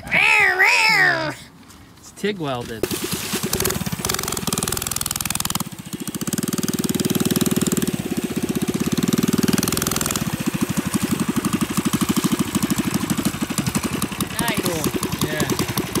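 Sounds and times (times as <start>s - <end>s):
mini bike engine running: 2.8s - 16.0s.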